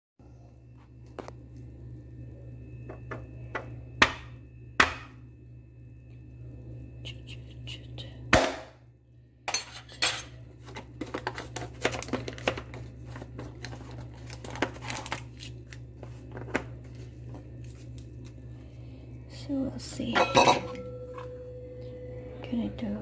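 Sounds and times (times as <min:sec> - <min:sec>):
low steady hum: 0:00.2 - 0:23.0
plastic seal crinkling and tearing: 0:11.0 - 0:16.6.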